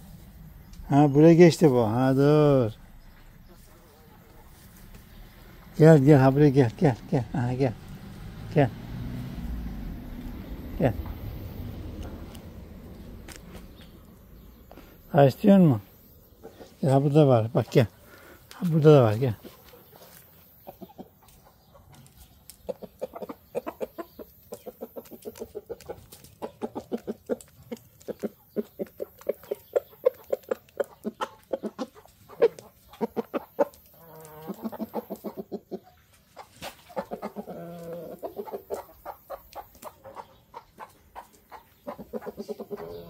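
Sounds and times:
chickens clucking: 0.0s - 8.7s, 9.3s - 43.0s
beaks pecking on concrete: 10.2s - 43.0s
chicken drawn-out calls: 14.6s - 43.0s.

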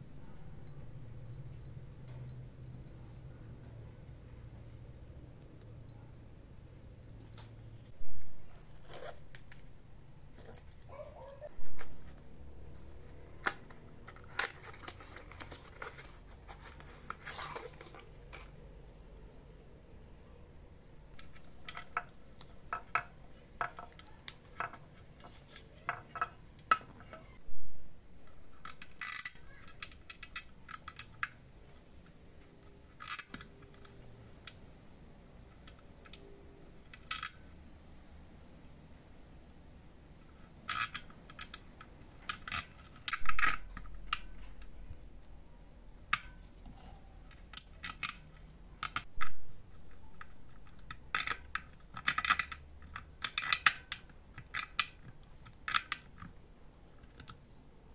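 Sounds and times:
metal tools clicking and clinking: 0.2s - 4.9s, 28.2s - 31.4s.

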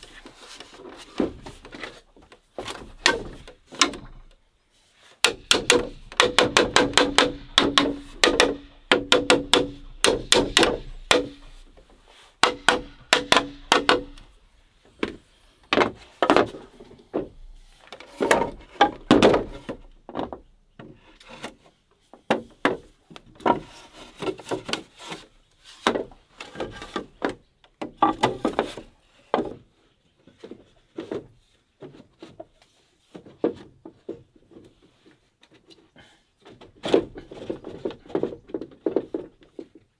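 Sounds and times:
bamboo scraping: 0.0s - 27.3s, 28.0s - 33.7s
hollow bamboo knocks: 5.2s - 14.3s, 14.9s - 21.1s, 22.1s - 24.9s, 25.8s - 29.7s.

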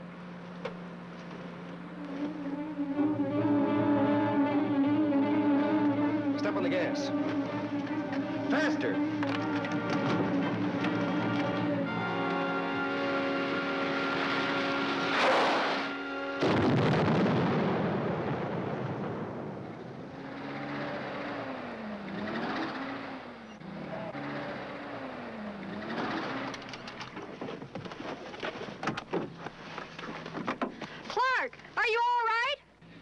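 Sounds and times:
music with rising and falling tones: 1.8s - 17.1s
dramatic orchestral music: 1.9s - 17.0s
loud explosion: 16.4s - 20.1s.

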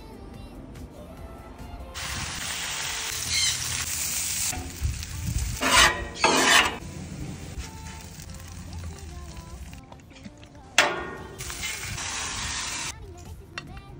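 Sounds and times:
background music: 0.0s - 2.0s, 7.7s - 13.9s
bacon sizzling on a griddle: 2.0s - 9.8s, 11.4s - 12.9s
metal scraper scraping griddle: 5.6s - 6.8s.

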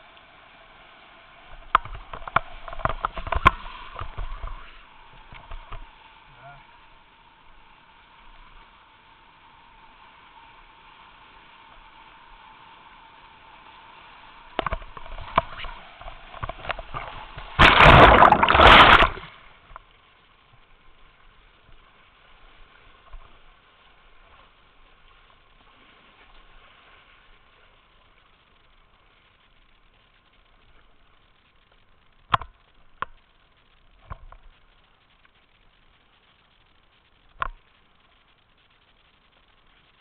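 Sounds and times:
paddle splashes: 14.5s - 19.5s
whitewater rushing: 14.6s - 19.3s
loud rush of water crashing: 16.9s - 19.4s.

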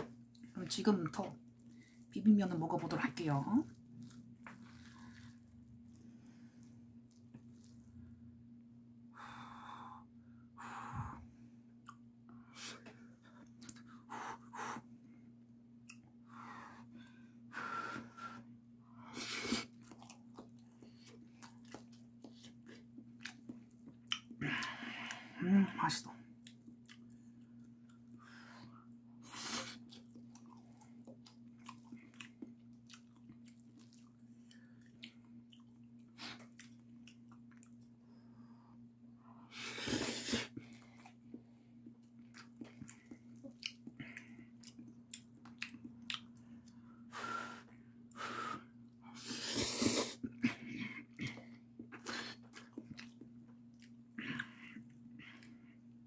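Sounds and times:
steady low hum: 0.0s - 56.0s
wet chewing with smacks: 3.7s - 6.1s, 13.4s - 14.0s, 19.4s - 24.7s, 26.4s - 28.2s, 29.3s - 38.0s, 39.9s - 46.8s, 49.4s - 55.6s
slurping noodles: 49.2s - 50.3s.

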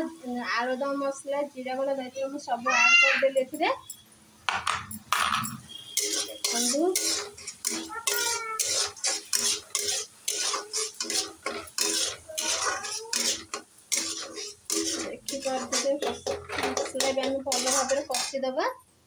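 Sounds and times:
metal spatula scraping a pan: 5.2s - 18.6s.

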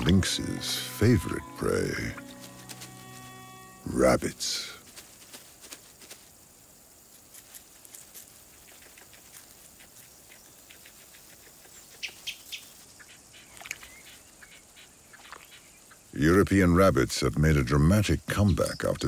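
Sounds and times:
rabbit rustling in dry grass: 0.0s - 13.5s
sharp ticks: 7.9s - 12.5s.

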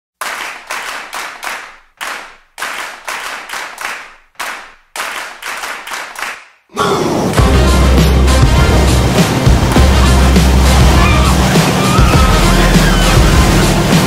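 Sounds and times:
rhythmic hand clapping: 0.2s - 6.6s, 7.3s - 10.9s.

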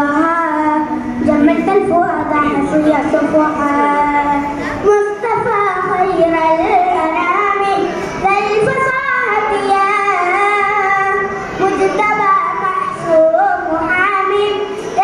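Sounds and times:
boy singing into a microphone: 0.0s - 15.0s.

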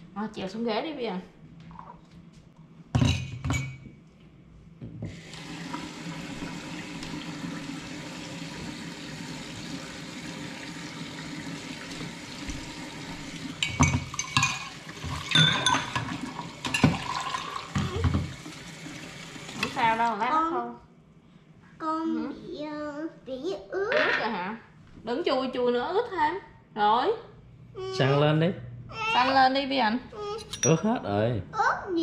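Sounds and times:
water running into sink: 5.1s - 20.0s.

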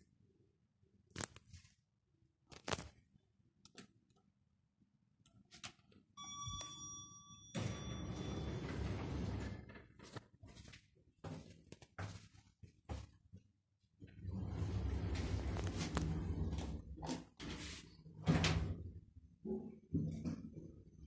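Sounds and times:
elevator arrival chime: 6.2s - 9.7s
elevator doors sliding open: 7.6s - 9.8s, 14.2s - 16.8s.

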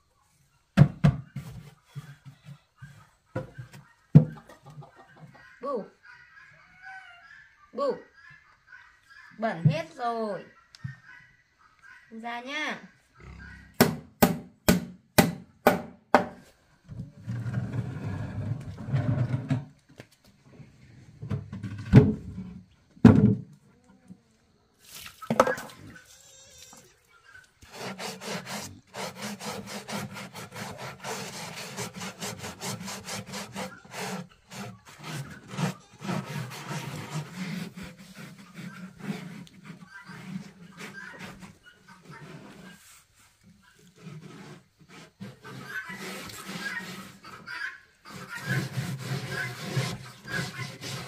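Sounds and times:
hammer knocking on wood: 13.8s - 16.4s
scrubbing on wood: 27.4s - 51.0s.

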